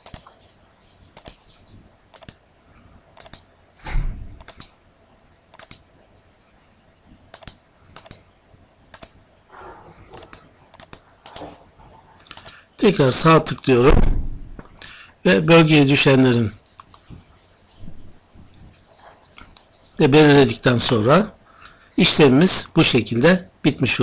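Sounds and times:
computer mouse clicks: 0.0s - 0.4s, 1.1s - 1.5s, 2.1s - 2.4s, 3.2s - 3.5s, 4.4s - 4.8s, 5.5s - 5.9s, 7.3s - 8.2s, 8.9s - 9.2s, 10.1s - 11.5s, 12.2s - 12.8s, 16.6s - 17.1s
soft low thump: 13.9s - 14.7s.

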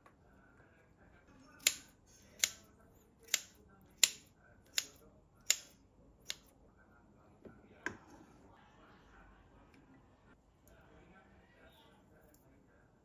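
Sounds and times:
scissors snipping: 1.6s - 6.4s.

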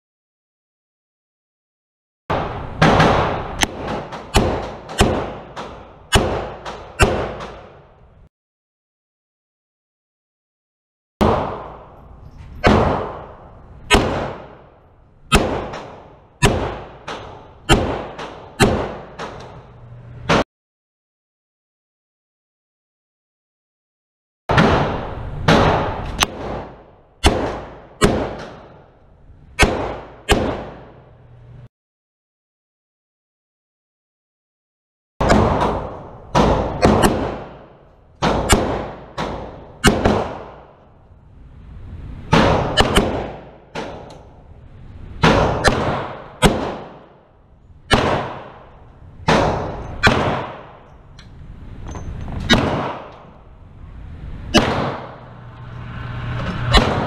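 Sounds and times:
revolver shots echoing: 2.3s - 7.8s, 11.2s - 20.4s, 35.2s - 40.7s, 42.3s - 44.1s, 45.2s - 47.2s, 47.9s - 50.9s, 52.4s - 53.3s, 54.5s - 55.4s, 56.6s - 57.0s
sharp crack: 2.3s - 7.9s, 11.2s - 19.6s, 24.5s - 28.9s, 29.6s - 31.0s, 35.2s - 40.9s, 42.3s - 44.3s, 45.2s - 47.3s, 47.9s - 51.4s, 52.4s - 53.5s, 54.4s - 57.0s
fainter gunshot cracks: 47.9s - 48.6s, 54.5s - 55.2s.

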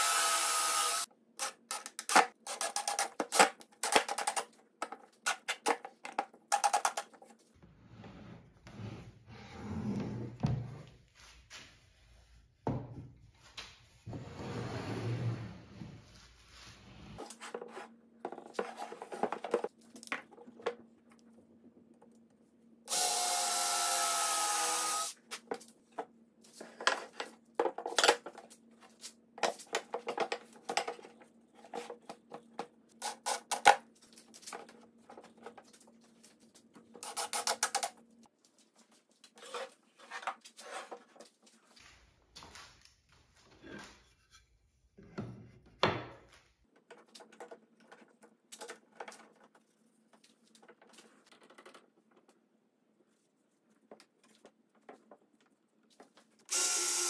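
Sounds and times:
power tool running: 0.0s - 1.0s, 22.9s - 25.1s, 56.5s - 57.0s.

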